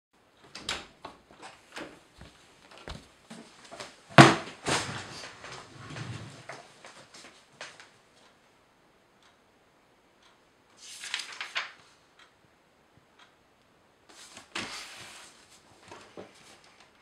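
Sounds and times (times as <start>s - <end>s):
paper pages rustling: 10.8s - 12.0s, 14.1s - 17.0s.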